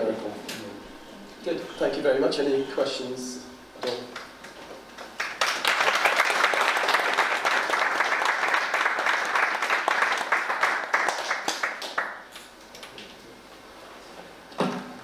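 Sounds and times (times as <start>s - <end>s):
audience applauding: 5.0s - 12.3s.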